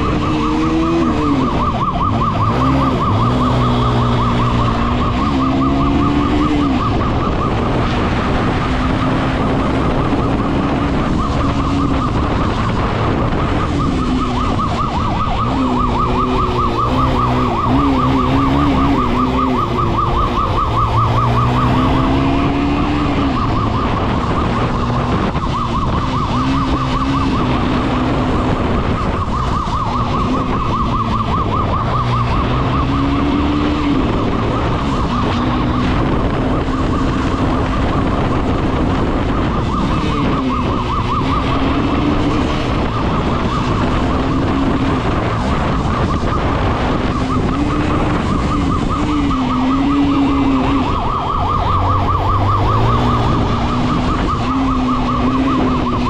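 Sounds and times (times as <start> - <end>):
motorcycle engine revving: 0.0 - 56.0
police siren warbling: 0.0 - 56.0.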